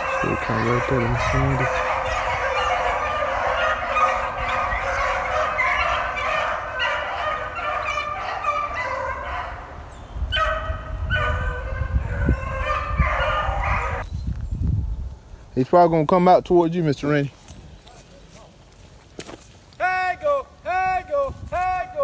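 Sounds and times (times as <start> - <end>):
dogs baying: 0.0 - 14.0.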